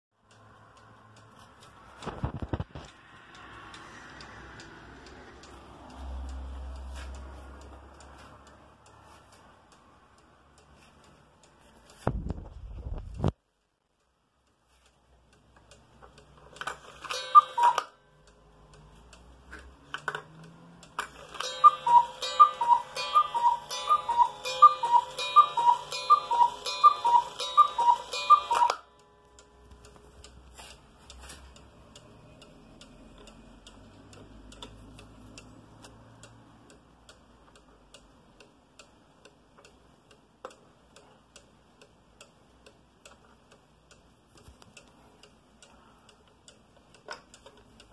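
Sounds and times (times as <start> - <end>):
clock pendulum ticking: 0.2 - 12.1, 12.8 - 47.9
cuckoo clock calling: 16.5 - 35.6.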